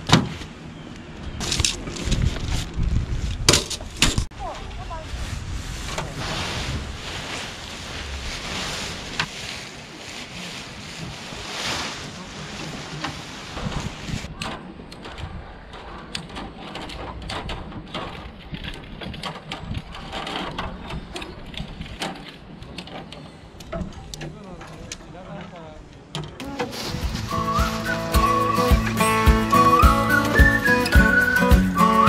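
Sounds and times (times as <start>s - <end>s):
wind buffeting microphone: 1.2s - 9.3s, 10.6s - 22.8s, 26.8s - 28.5s.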